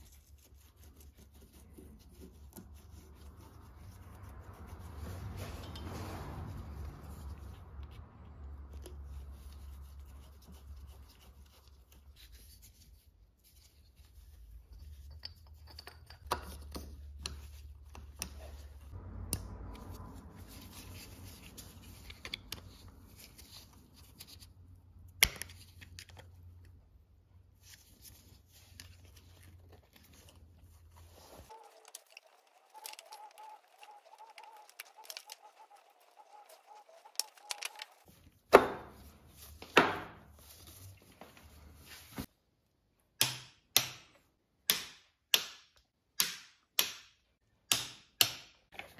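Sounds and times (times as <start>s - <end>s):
shop rag rustling: 27.4s - 42.3s
small metal parts clicking: 31.5s - 38.1s.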